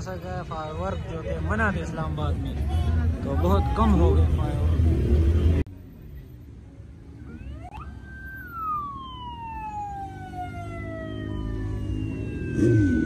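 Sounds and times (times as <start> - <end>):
low traffic rumble: 0.0 - 13.0
siren wailing: 7.2 - 13.0.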